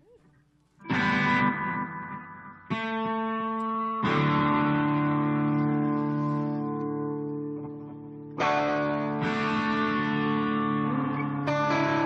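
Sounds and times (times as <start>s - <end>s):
guitar strummed chords: 0.8s - 12.0s.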